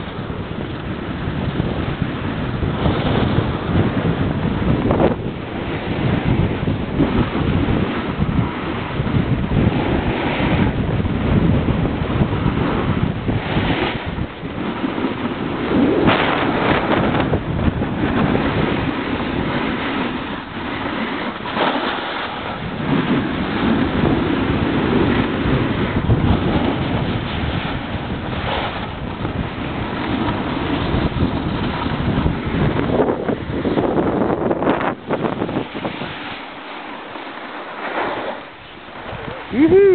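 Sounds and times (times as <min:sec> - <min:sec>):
wind rushing over microphone: 0:00.0 - 0:39.9
skis scraping on snow: 0:13.4 - 0:17.4, 0:18.0 - 0:34.0, 0:34.7 - 0:39.6.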